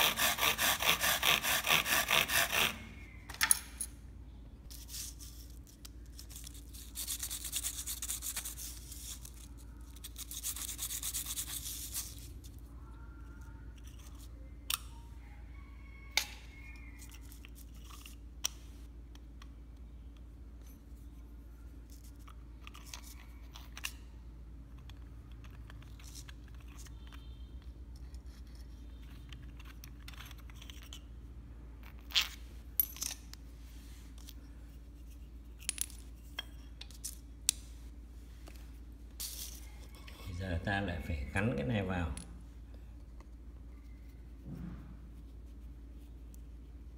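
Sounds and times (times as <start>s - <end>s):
hand tool scraping rod: 0.0s - 2.8s
steady low hum: 0.0s - 46.9s.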